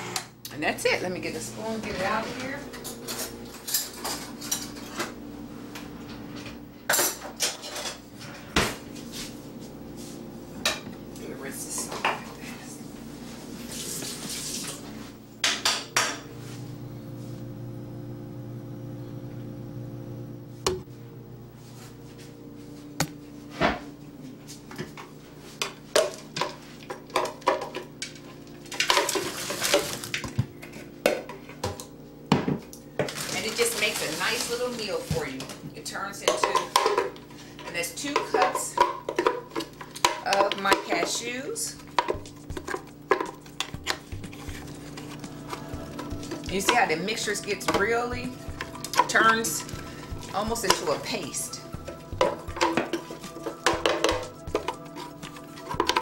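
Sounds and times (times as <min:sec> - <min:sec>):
wooden spoon knocking on glass: 0:53.6 - 0:54.8.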